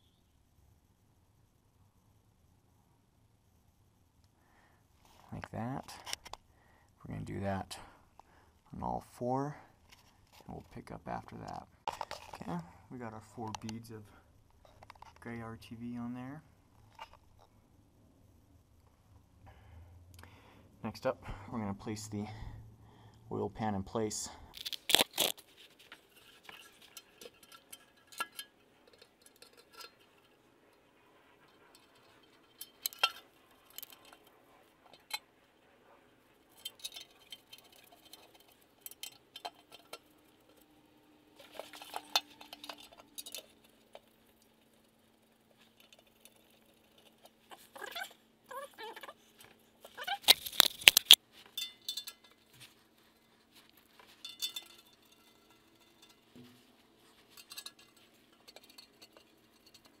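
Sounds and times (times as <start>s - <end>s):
metal clatter: 25.2s - 35.3s, 36.3s - 48.2s, 53.8s - 60.0s
light metallic clicks and clinks: 25.9s - 35.3s, 36.3s - 48.2s, 50.3s - 60.0s.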